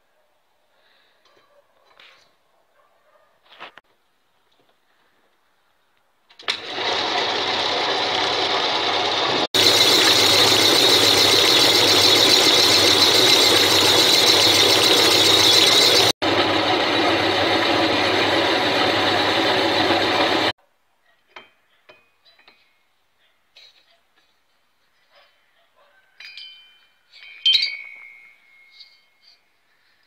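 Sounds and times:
metal lathe cutting: 6.5s - 20.5s
faint metallic clinks: 26.1s - 29.7s.

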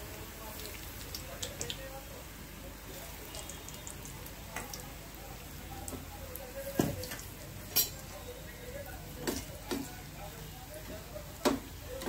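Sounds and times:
food deep-frying in hot oil: 0.0s - 12.0s
metal spoons clinking on pan: 7.1s - 8.1s.

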